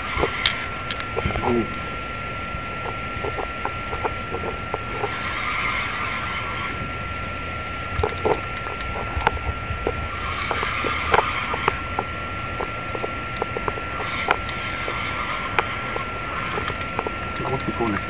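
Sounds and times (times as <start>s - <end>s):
fishing reel clicks and knocks: 0.4s - 1.1s.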